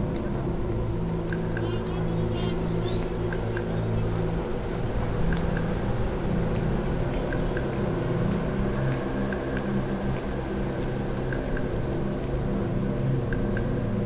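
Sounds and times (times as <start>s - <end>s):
low mechanical drone: 0.0s - 14.0s
faint ticks: 1.2s - 1.7s, 4.7s - 5.8s, 6.4s - 12.4s, 13.3s - 14.0s.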